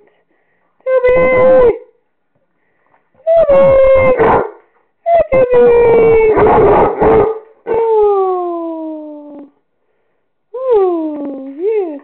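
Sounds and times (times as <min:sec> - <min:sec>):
dog howling: 0:03.5 - 0:04.6, 0:05.4 - 0:07.9.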